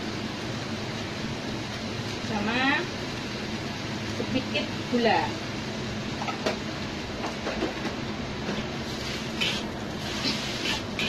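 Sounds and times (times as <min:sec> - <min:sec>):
noodles frying in a wok: 0:00.0 - 0:11.0
metal spatula scraping a wok: 0:08.9 - 0:11.0.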